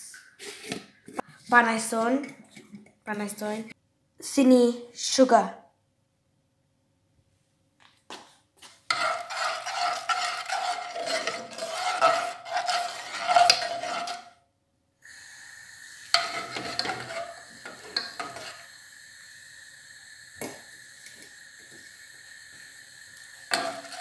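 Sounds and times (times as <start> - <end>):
metal spoon stirring in saucepan: 8.9 - 14.4, 16.0 - 18.8, 23.4 - 24.0
steady hiss: 15.0 - 24.0.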